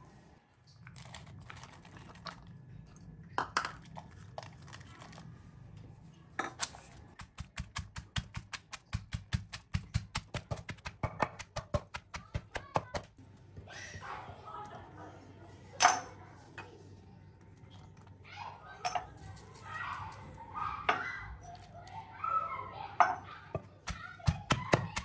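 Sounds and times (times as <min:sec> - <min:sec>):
wooden pestle pounding on stone: 0:07.2 - 0:13.1, 0:23.9 - 0:25.0.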